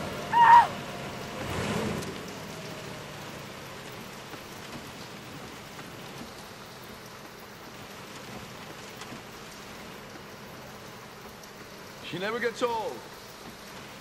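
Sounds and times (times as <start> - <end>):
heavy rain on car: 0.0 - 14.0
raindrops hitting: 0.0 - 14.0.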